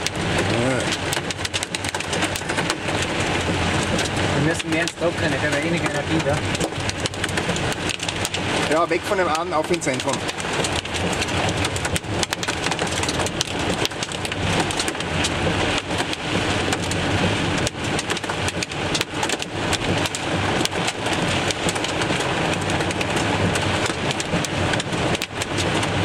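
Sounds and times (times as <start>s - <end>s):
hailstones ticking on car: 0.0s - 26.0s
heavy rain on car roof: 0.0s - 26.0s.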